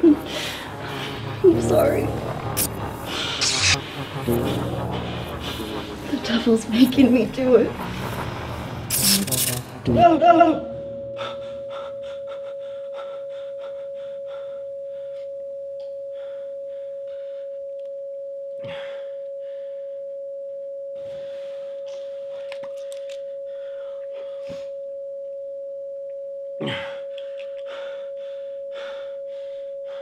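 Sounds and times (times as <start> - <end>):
steady electronic sine tone: 0.0 - 30.0
short sharp noise: 2.0 - 6.4.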